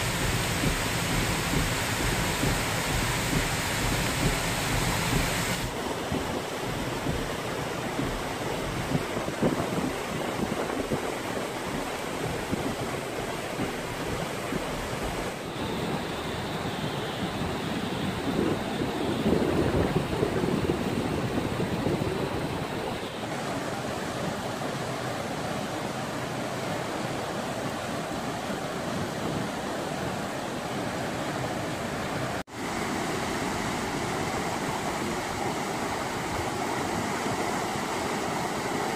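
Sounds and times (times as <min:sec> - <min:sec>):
water pouring over culvert: 0:00.0 - 0:16.2
muddy water rushing over rocks: 0:00.0 - 0:38.9.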